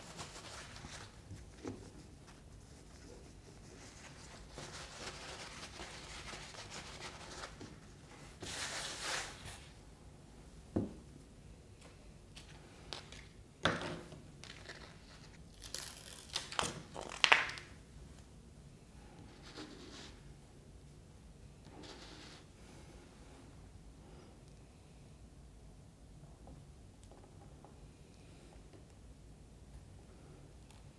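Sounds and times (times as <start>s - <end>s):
paper and tape crumpling and tearing: 14.4s - 17.7s.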